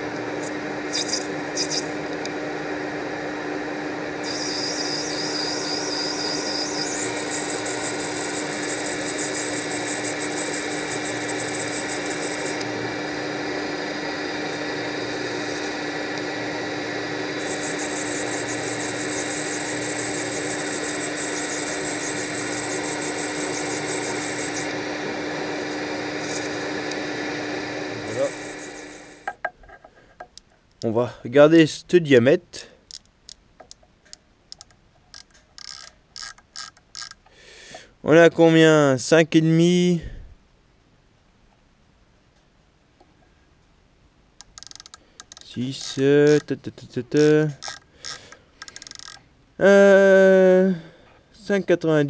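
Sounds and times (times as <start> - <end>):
metal lathe humming: 0.0 - 29.4, 45.4 - 46.5
high hiss: 28.0 - 29.3.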